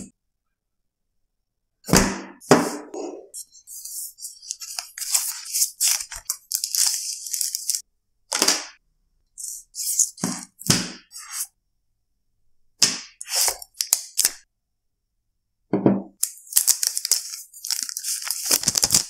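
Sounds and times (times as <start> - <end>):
packaging crackling rustles: 4.4 - 7.8, 16.2 - 19.0.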